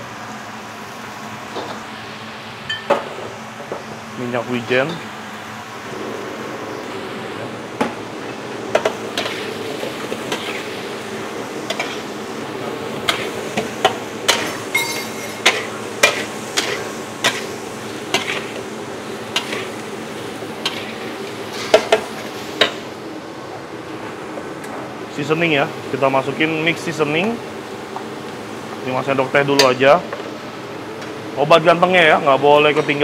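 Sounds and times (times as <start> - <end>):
food frying hiss: 3.0 - 23.2
spatula scraping a wok: 10.2 - 10.8, 14.3 - 18.6, 19.3 - 19.8, 20.6 - 21.8.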